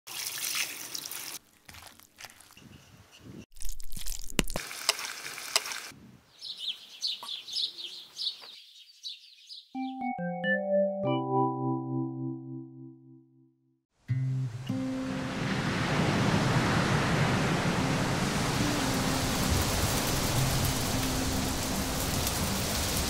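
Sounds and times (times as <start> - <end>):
high bird chirps: 6.3 - 10.4
soft music notes: 9.8 - 13.4, 14.1 - 15.6, 18.4 - 22.2.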